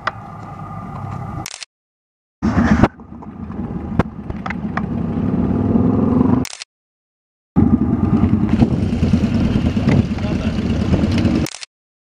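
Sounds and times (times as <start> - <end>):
sharp clicks: 1.4 - 1.7, 6.4 - 6.7, 11.4 - 11.7
motorcycle engine running: 2.4 - 6.4, 7.6 - 11.6.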